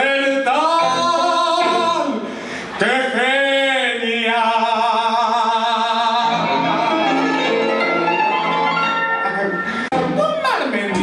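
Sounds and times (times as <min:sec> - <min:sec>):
person singing operatic notes: 0:00.0 - 0:07.7.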